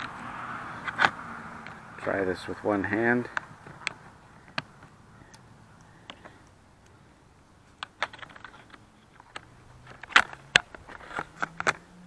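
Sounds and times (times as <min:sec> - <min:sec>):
sharp plastic snaps: 0:07.7 - 0:11.8.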